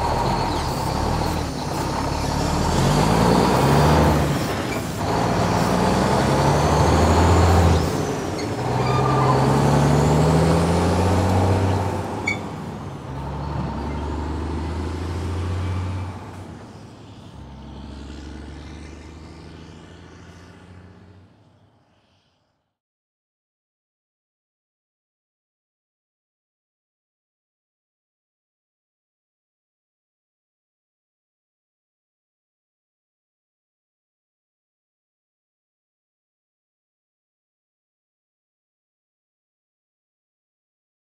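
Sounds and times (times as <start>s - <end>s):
truck engine pulling away: 0.0s - 21.7s.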